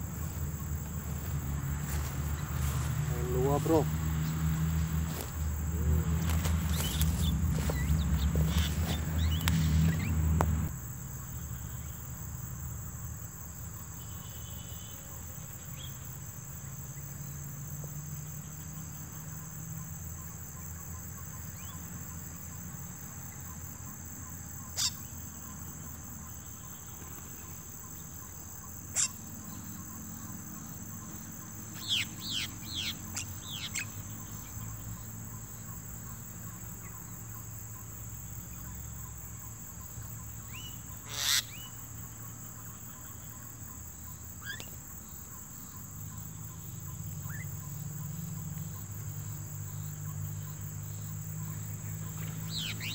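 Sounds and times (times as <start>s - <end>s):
high-pitched insect trill: 0.0s - 52.9s
falling bird chirps: 6.3s - 10.6s.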